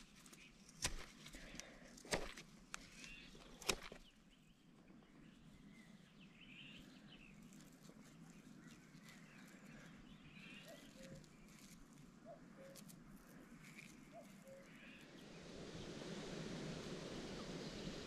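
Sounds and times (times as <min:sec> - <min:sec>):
faint bird chirps: 0:02.9 - 0:16.0.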